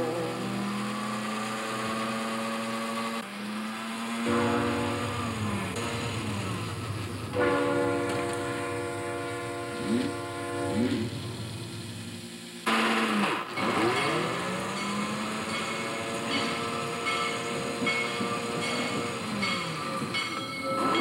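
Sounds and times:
train horn blasts: 0:03.9 - 0:11.6.

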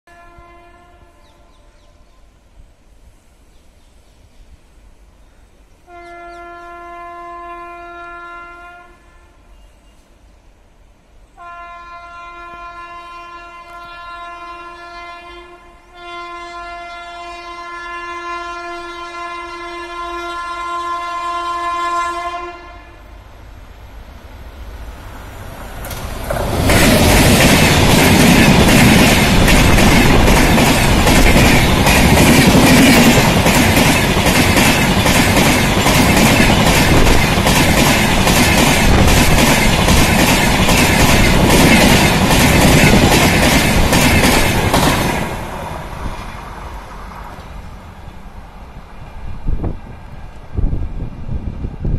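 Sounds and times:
train horn blast: 0:00.1 - 0:02.0, 0:05.8 - 0:10.0, 0:11.4 - 0:23.2
train passing close by: 0:00.1 - 0:51.9
wheels clicking over rail joints: 0:25.8 - 0:45.4.

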